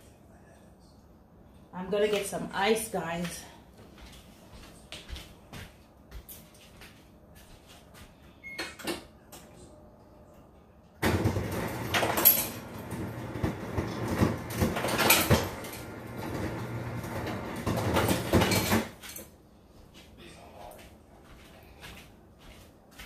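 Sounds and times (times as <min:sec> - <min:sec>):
ice dispenser motor hum: 0:11.0 - 0:19.0.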